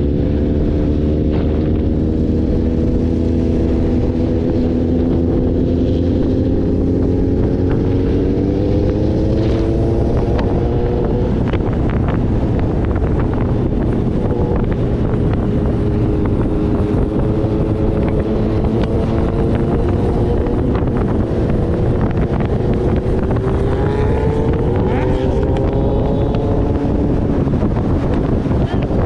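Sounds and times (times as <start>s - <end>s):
motorcycle engine: 0.0s - 29.0s
wind buffeting microphone: 0.0s - 29.0s.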